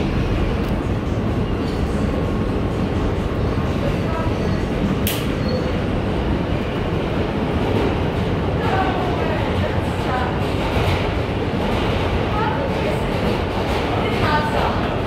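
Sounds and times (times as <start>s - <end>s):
subway car rumbling on rails: 0.0s - 15.0s
sharp click: 5.0s - 5.4s.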